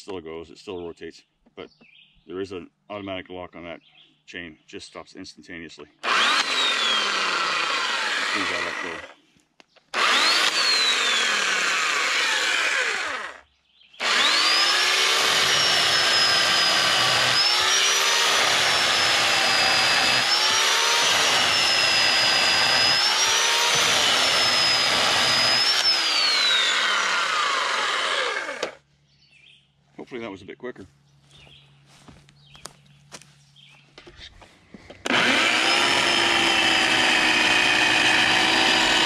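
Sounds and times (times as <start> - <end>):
electric chainsaw cutting log: 6.0 - 9.2, 9.9 - 13.4, 14.0 - 28.8, 35.0 - 39.0.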